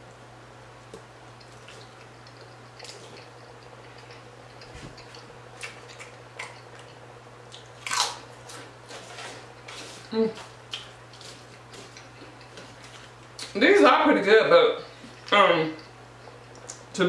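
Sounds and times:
low electrical hum: 0.0 - 17.0
wet chewing: 0.8 - 13.6
potato chip crunching: 0.9 - 13.6.

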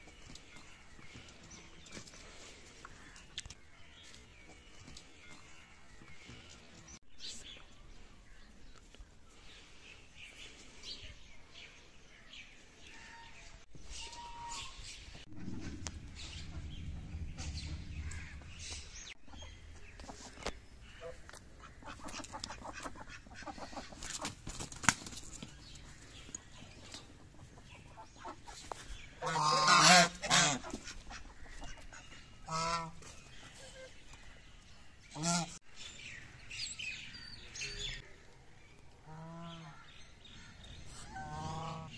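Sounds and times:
low rumble: 14.7 - 20.9
geese honking: 29.2 - 31.3, 32.5 - 33.0, 41.1 - 41.9.

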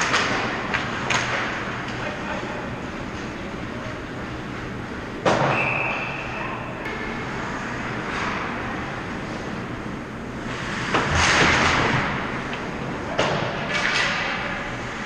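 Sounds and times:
referee's whistle: 5.5 - 6.4.

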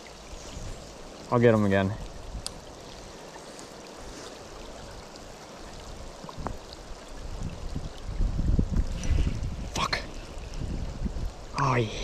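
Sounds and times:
stream water flowing: 0.0 - 12.0
faint clicks: 2.4 - 2.6.

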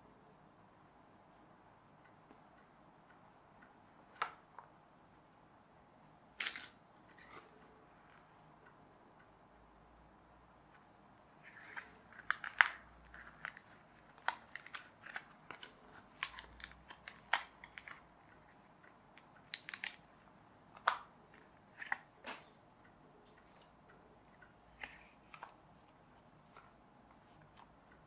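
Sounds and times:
card pieces snapping and crackling: 6.4 - 7.5, 11.5 - 18.1, 19.2 - 20.1.

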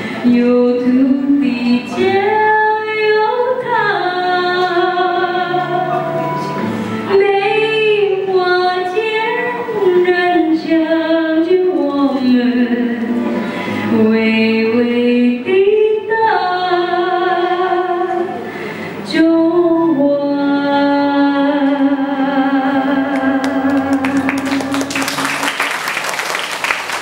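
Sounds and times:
woman singing into microphone: 0.0 - 6.2, 7.0 - 25.5
audience applause: 23.2 - 27.0.

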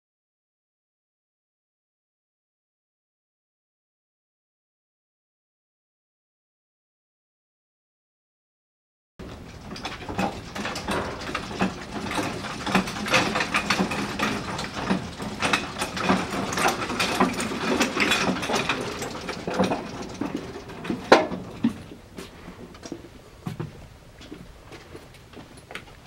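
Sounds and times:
shelving carriages clicking and rattling: 9.2 - 26.0.

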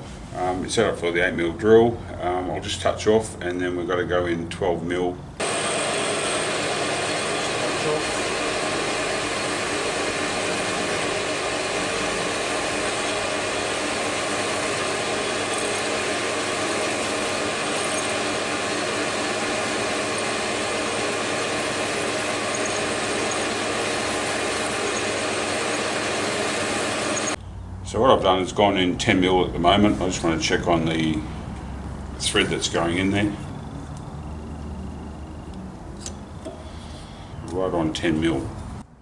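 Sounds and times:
drill boring into metal: 5.4 - 27.4
metal lathe whining: 5.4 - 27.4.

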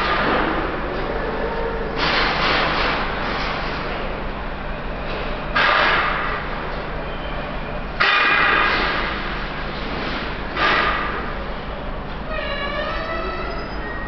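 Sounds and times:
ringing bell-like signal: 13.3 - 14.0.

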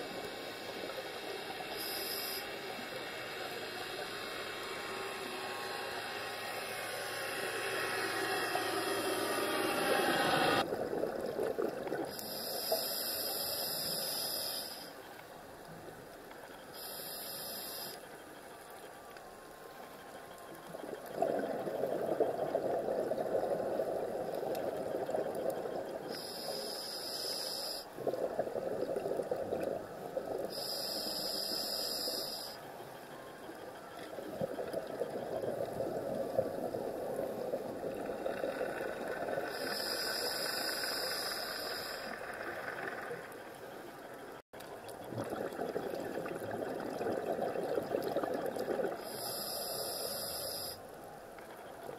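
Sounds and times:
diver inhaling through regulator: 1.7 - 5.5, 12.1 - 15.0, 16.8 - 18.0, 26.0 - 28.0, 30.5 - 32.6, 39.4 - 42.4, 49.0 - 50.8.

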